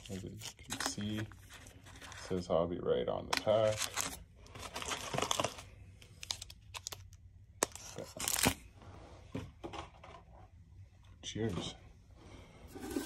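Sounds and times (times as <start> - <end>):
foil wrappers crinkling: 0.0 - 2.3, 3.4 - 8.6.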